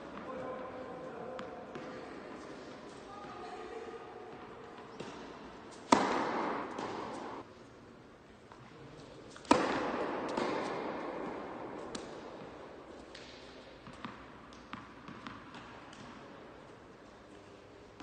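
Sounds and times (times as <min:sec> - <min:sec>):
racket hitting ball: 0:04.3 - 0:07.4, 0:09.3 - 0:16.2
tennis ball bouncing: 0:04.3 - 0:07.4, 0:09.3 - 0:16.2.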